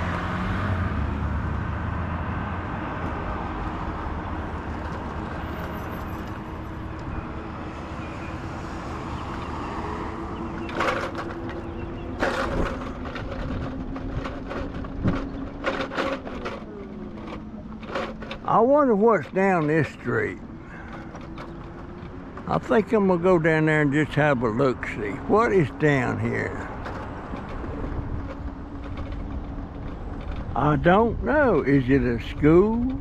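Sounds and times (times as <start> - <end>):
car passing with low rumble: 0.0 - 33.0
sharp clicks and rattles: 9.1 - 33.0.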